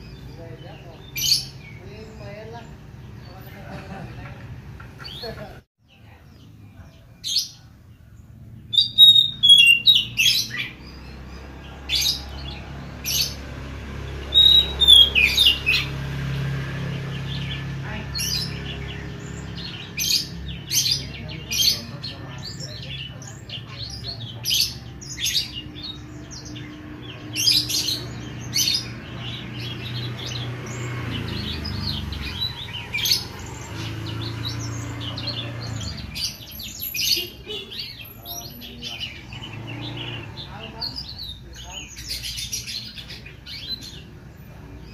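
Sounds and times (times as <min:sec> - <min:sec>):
bird singing whistled notes: 0:08.6 - 0:13.4, 0:14.2 - 0:16.0.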